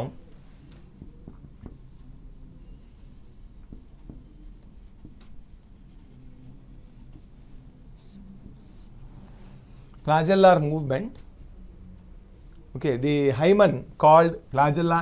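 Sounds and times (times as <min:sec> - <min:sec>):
marker scratching on whiteboard: 0:00.5 - 0:09.0
marker swish on whiteboard: 0:00.6 - 0:09.0.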